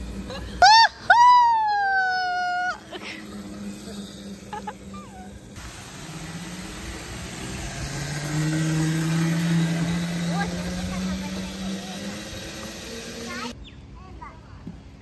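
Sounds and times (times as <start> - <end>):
electric scooter motor humming: 0.0 - 13.6
steady hiss: 2.9 - 10.4.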